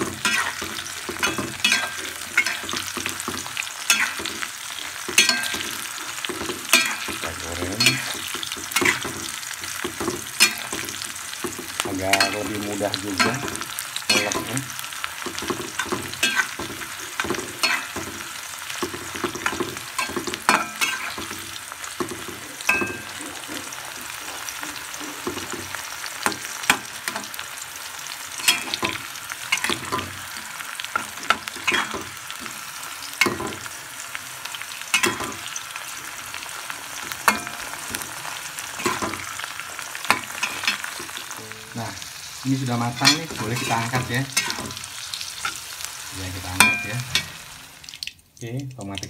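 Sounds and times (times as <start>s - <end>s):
food sizzling in hot oil: 0.0s - 49.0s
metal spoon scraping a wok: 0.2s - 2.9s, 3.9s - 7.2s, 19.4s - 21.3s, 42.9s - 44.8s.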